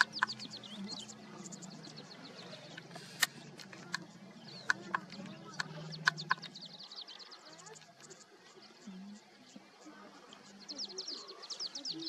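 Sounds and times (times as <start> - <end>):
sharp clicks: 0.0 - 0.5, 2.7 - 6.6
small birds chirping: 0.0 - 12.0.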